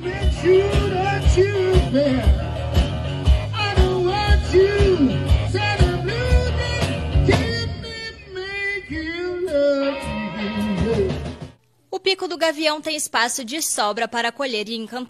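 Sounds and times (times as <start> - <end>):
steady drum beat: 0.0 - 7.7, 10.6 - 11.6
electric guitar bending notes: 0.0 - 11.6.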